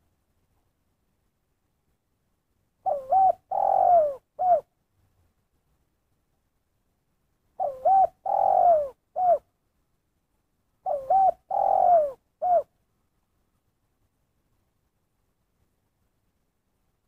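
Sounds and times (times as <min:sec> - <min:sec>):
dove cooing: 0:02.8 - 0:04.7, 0:07.6 - 0:09.5, 0:10.8 - 0:12.7.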